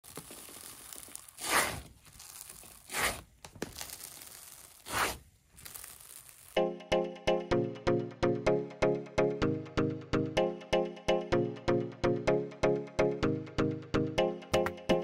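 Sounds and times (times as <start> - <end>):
slime crackling and squishing: 0.0 - 6.6
music with steady beat: 6.6 - 15.0.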